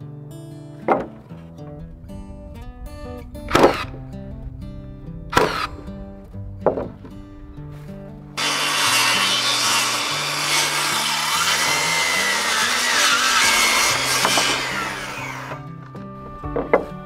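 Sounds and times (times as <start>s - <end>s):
chainsaw cutting wooden board: 5.4s - 5.7s, 8.4s - 15.7s.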